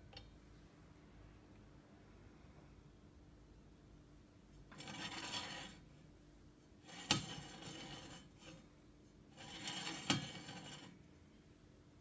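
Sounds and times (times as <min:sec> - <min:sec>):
saw blade rubbing and scraping: 0:04.7 - 0:05.8, 0:06.9 - 0:08.6, 0:09.4 - 0:11.0.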